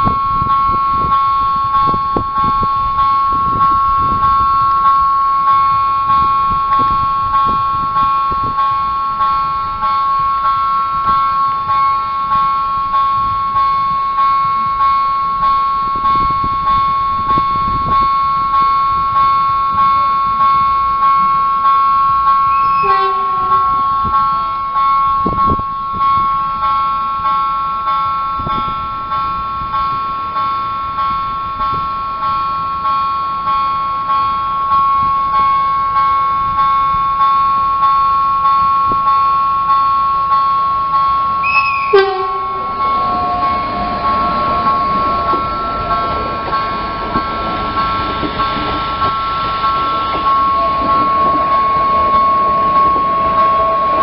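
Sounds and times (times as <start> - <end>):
electric train rumble: 0.0 - 54.0
level crossing warning bell: 0.0 - 54.0
loud tone dropping in pitch: 41.4 - 46.0.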